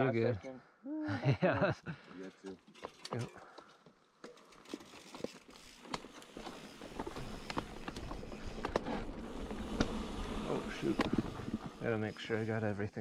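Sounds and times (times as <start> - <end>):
bike clicks and scuffs: 2.7 - 11.8
footsteps on dirt trail: 4.7 - 11.9.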